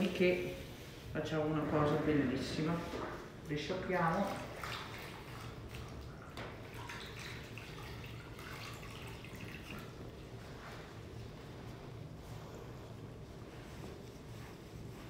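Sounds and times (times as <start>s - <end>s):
water splashing in a basin: 2.9s - 10.8s.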